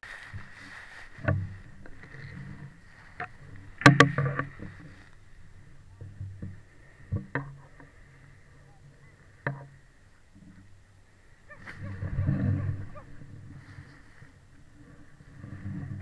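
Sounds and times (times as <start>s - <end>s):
sharp knocks: 3.8s - 4.7s.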